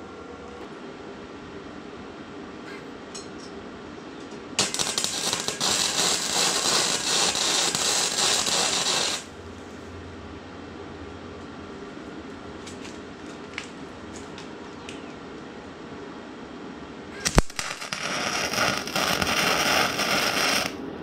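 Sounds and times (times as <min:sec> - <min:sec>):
arc welding crackling sizzle: 0:04.6 - 0:09.4, 0:17.2 - 0:20.8.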